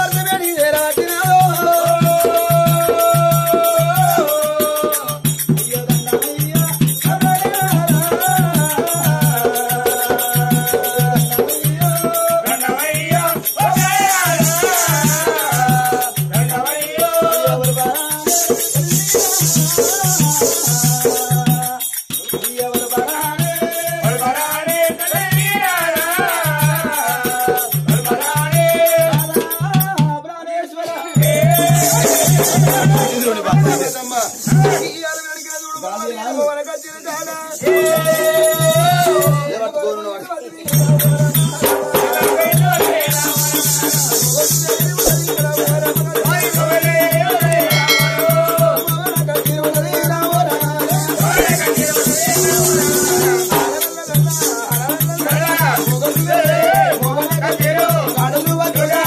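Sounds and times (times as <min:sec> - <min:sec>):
bright jingling: 0:00.0 - 0:29.8, 0:30.9 - 0:39.8, 0:40.7 - 0:59.0
steady low drum beat: 0:40.8 - 0:59.0
wavering melody: 0:47.6 - 0:48.9.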